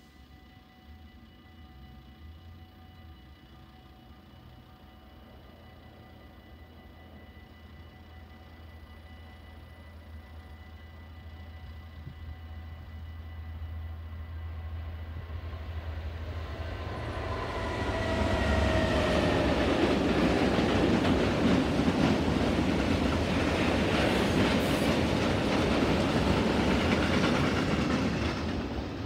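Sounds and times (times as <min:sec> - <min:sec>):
diesel locomotive engine passing: 0:05.2 - 0:29.0
train wheels on rails: 0:06.8 - 0:29.0.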